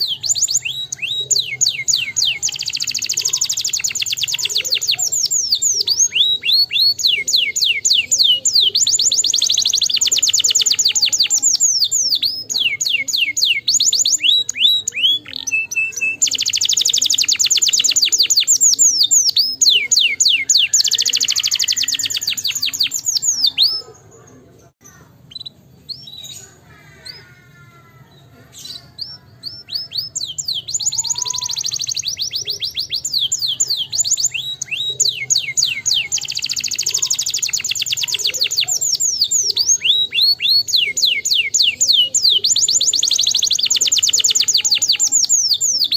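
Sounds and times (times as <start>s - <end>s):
canary singing trills: 0.0s - 45.9s.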